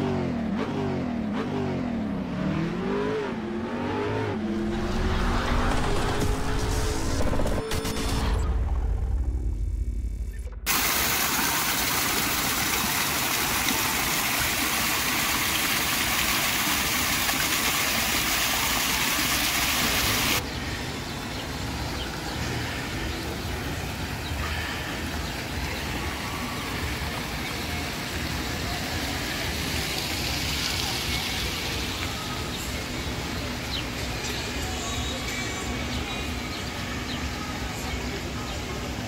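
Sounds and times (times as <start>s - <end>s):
low rumble: 4.4s - 10.7s
fountain water splashing: 10.7s - 39.0s.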